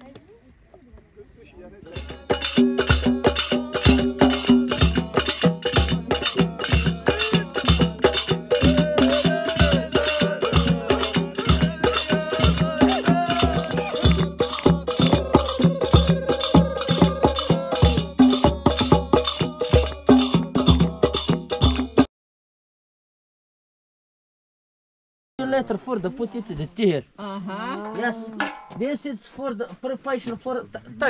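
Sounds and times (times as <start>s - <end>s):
person singing: 1.9s - 21.6s
hand drums beating: 1.9s - 22.1s, 28.3s - 28.9s.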